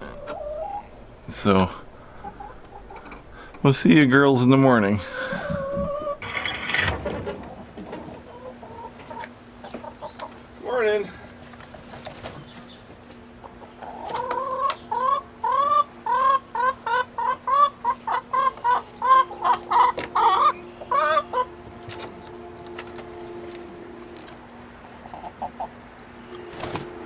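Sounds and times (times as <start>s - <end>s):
hens clucking: 0.0s - 27.0s.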